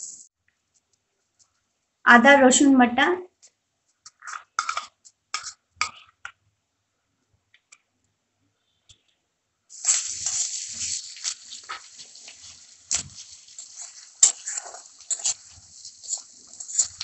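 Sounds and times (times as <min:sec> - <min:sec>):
food sizzling in hot oil: 0:00.0 - 0:00.3, 0:09.7 - 0:17.0
metal spatula scraping pan: 0:09.9 - 0:17.0.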